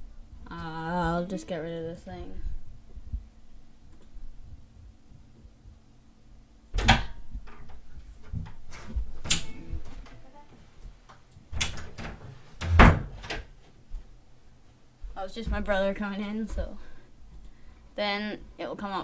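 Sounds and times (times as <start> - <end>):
door opening and closing: 6.8 - 10.3, 11.5 - 13.5.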